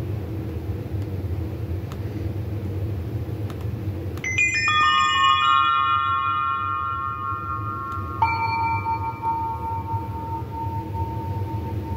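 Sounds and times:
low steady rumble: 0.0s - 11.9s
bell-like chime tones: 4.3s - 11.9s.

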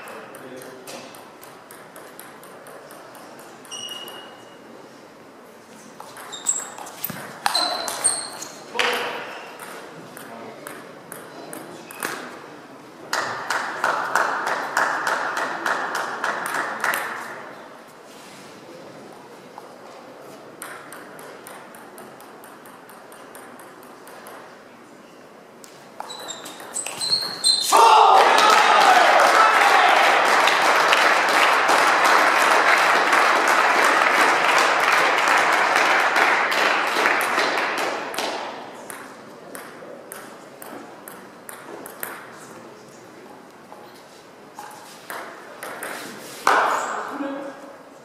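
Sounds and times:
table tennis balls ticking: 0.0s - 4.5s, 20.6s - 24.6s
sports hall noise: 0.0s - 48.0s.

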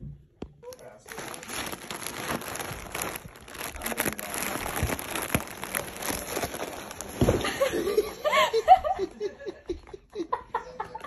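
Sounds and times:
plastic bag and cardboard rustling: 0.7s - 8.2s.

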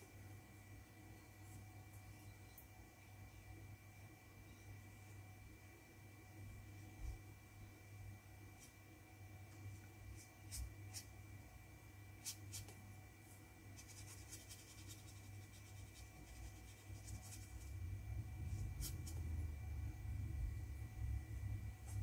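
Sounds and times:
faint high whine: 0.0s - 22.0s
brush strokes on paper: 9.5s - 11.2s, 12.2s - 17.8s, 18.4s - 19.5s
low hum: 13.2s - 22.0s.

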